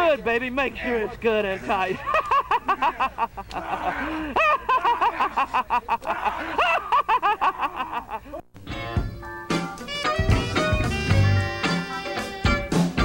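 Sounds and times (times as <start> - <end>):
men whooping and hollering: 0.7 - 8.2
men cackling with laughter: 1.6 - 8.4.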